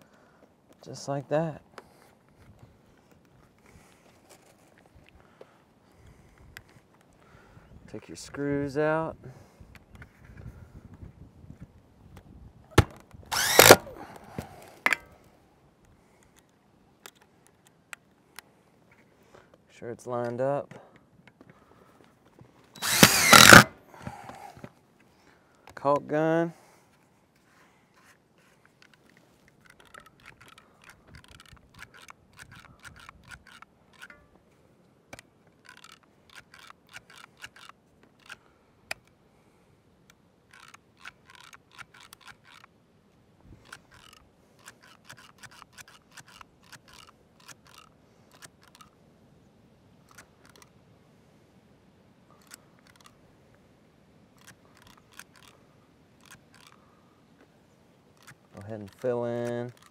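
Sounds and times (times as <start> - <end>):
caulk gun trigger clicking: 13.3 - 13.9, 22.8 - 23.7.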